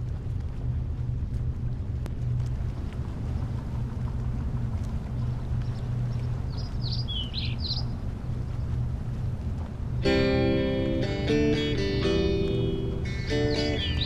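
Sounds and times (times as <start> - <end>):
steady low rumble: 0.0 - 14.0
high bird chirps: 6.5 - 7.9, 13.1 - 14.0.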